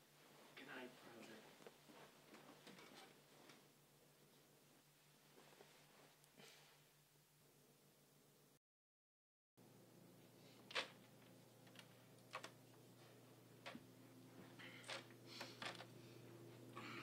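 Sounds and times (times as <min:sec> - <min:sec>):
faint clicks and rustles: 0:00.3 - 0:04.5, 0:10.6 - 0:16.6
steady low hum: 0:09.6 - 0:17.0.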